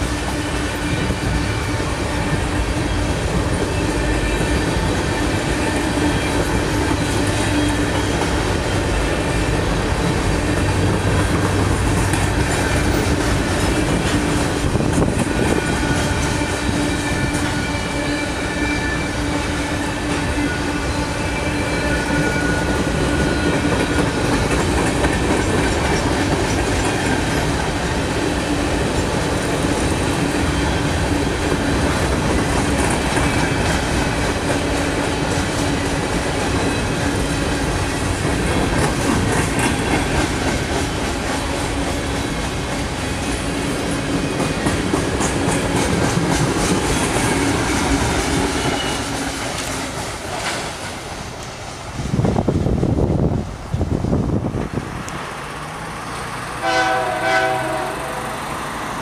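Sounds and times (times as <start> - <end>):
clickety-clack over rail joints: 0.0 - 59.0
train wheels rumbling on rail: 0.0 - 59.0.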